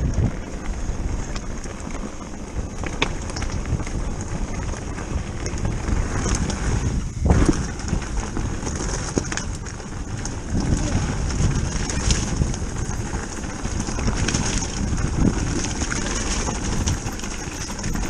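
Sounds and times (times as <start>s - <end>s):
bike rattles: 0.0s - 18.0s
tyres crunching on gravel: 0.0s - 18.0s
wind buffeting microphone: 0.0s - 18.0s.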